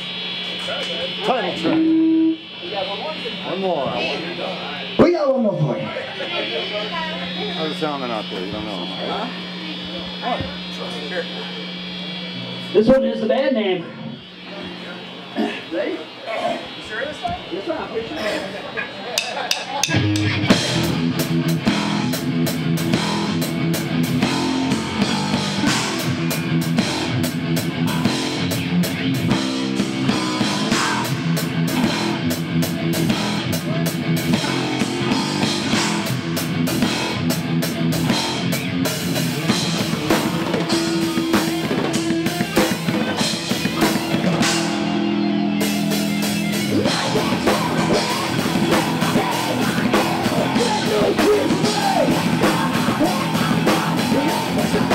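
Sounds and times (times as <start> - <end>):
metal band playing: 0.0 - 18.3, 19.1 - 54.9
distorted electric guitar chords: 0.0 - 54.9
fast drumming with crashing cymbals: 19.2 - 45.0, 45.6 - 54.9.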